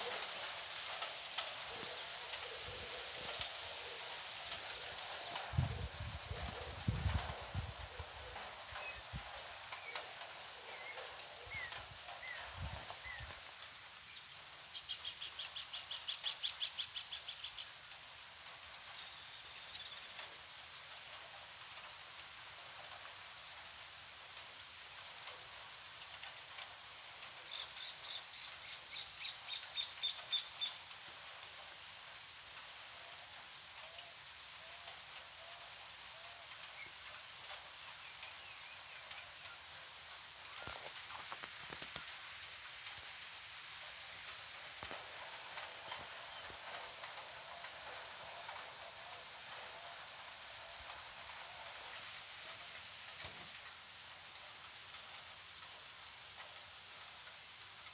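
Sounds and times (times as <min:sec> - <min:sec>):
steady outdoor hiss: 0:00.0 - 0:57.9
songbird singing: 0:01.7 - 0:17.9, 0:18.9 - 0:20.5, 0:27.4 - 0:30.9, 0:33.9 - 0:42.6, 0:43.6 - 0:53.2.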